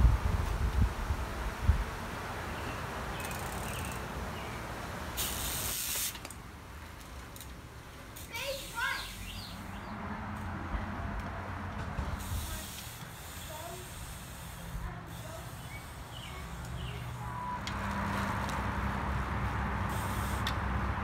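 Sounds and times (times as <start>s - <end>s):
road traffic rushing: 0.0s - 21.0s
steady hiss: 0.7s - 6.4s, 12.2s - 17.2s.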